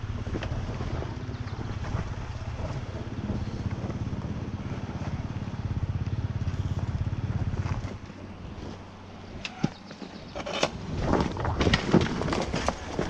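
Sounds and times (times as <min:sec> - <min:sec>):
motorcycle engine running: 0:00.0 - 0:10.4.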